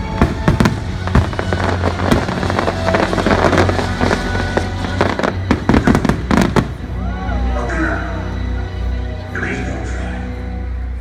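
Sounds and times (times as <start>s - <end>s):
fireworks bangs: 0.0s - 6.9s
fireworks crackling: 0.0s - 7.0s
loud symphonic music: 0.0s - 11.0s.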